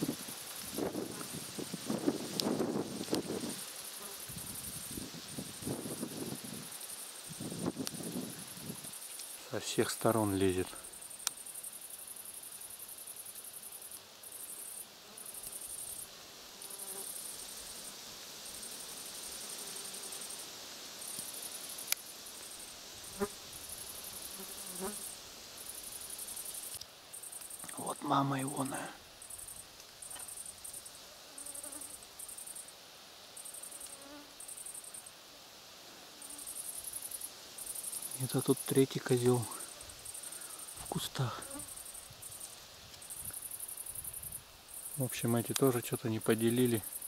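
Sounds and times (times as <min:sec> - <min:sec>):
insects trilling: 0:00.0 - 0:47.0.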